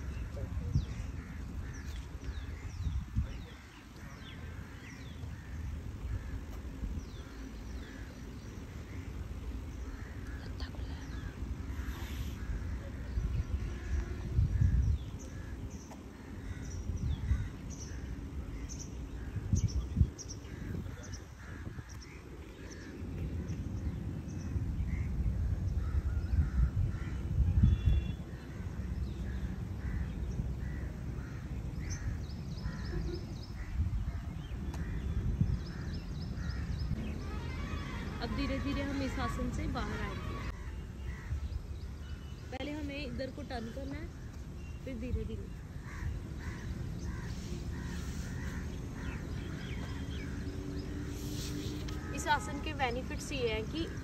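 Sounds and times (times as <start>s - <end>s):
birds chirping: 0.0s - 54.0s
birds cawing: 0.9s - 19.5s, 25.7s - 34.0s, 34.7s - 41.7s, 45.4s - 51.2s.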